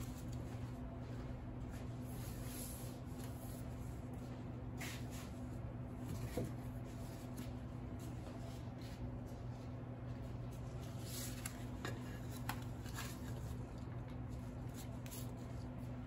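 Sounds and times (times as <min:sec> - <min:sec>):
low electrical hum: 0:00.0 - 0:16.0
soft scraping and handling: 0:00.0 - 0:16.0.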